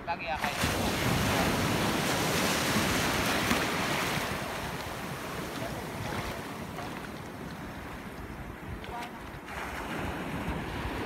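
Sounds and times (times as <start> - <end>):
surf washing in shallows: 0.2 - 11.0
wind noise on microphone: 0.6 - 11.0.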